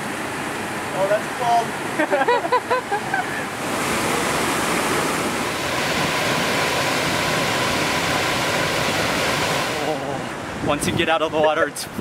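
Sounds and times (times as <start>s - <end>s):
swimmer crying out: 1.2s - 10.5s
waterfall pouring into pool: 3.7s - 10.2s.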